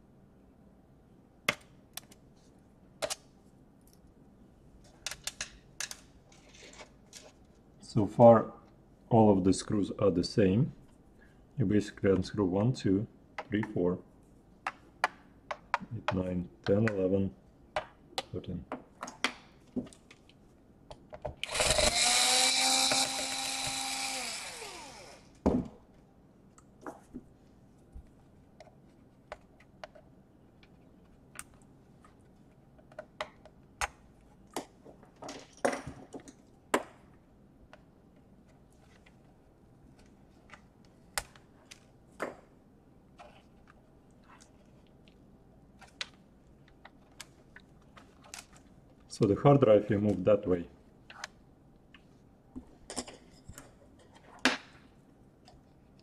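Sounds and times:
electric screwdriver motor whine: 21.4s - 25.3s.

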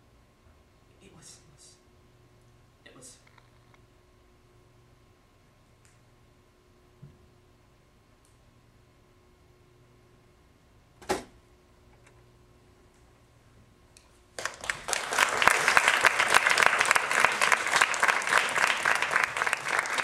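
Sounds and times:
audience applause: 14.4s - 20.0s.

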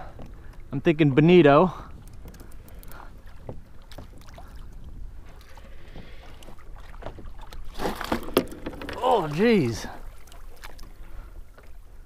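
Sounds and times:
wind rumble on microphone: 0.0s - 9.0s
small waves lapping against hull: 0.0s - 12.0s.

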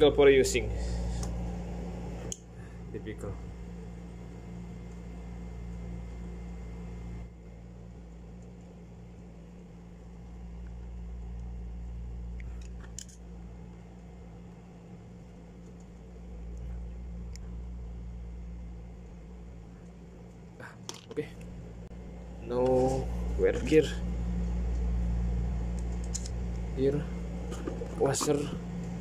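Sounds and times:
steady low hum: 0.0s - 29.0s
light clicks of small metal parts: 12.4s - 13.2s, 25.7s - 26.7s.

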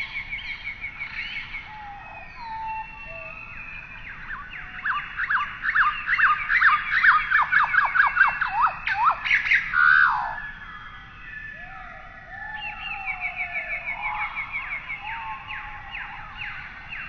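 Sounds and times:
bird whistling calls: 0.0s - 17.0s.

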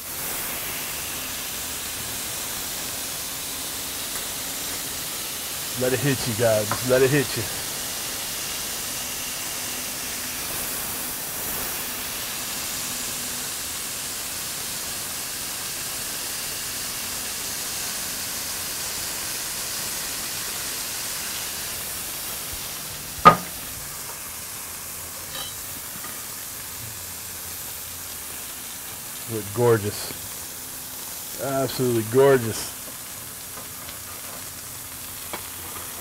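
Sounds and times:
burger patties sizzling on griddle: 0.0s - 36.0s
sharp knock: 23.2s - 23.6s.

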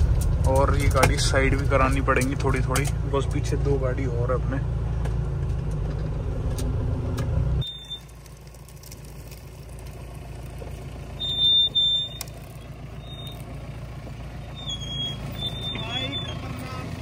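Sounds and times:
engines rumbling: 0.0s - 17.0s
quiet engine hum: 0.0s - 17.0s.

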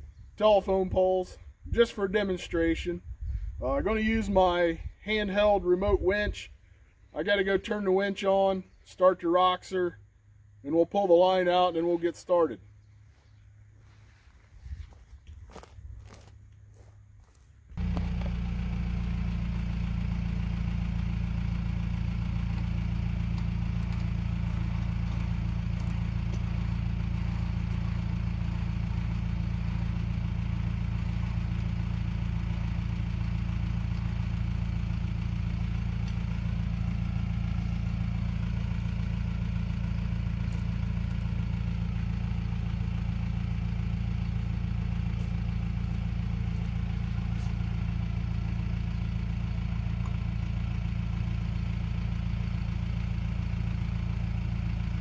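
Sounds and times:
diesel engine idling: 12.7s - 55.0s.

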